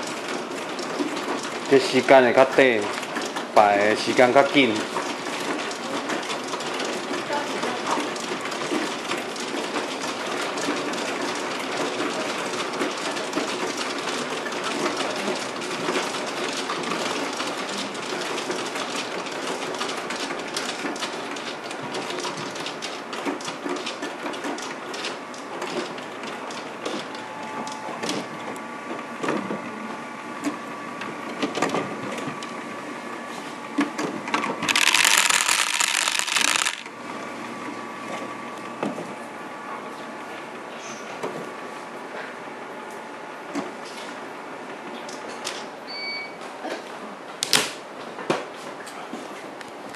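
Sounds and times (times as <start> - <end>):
motor hum: 27.1 - 39.5
tiles clattering together: 34.7 - 36.9.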